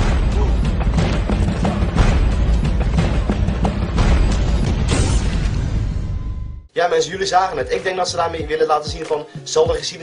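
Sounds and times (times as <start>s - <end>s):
dramatic soundtrack music: 0.0s - 6.7s.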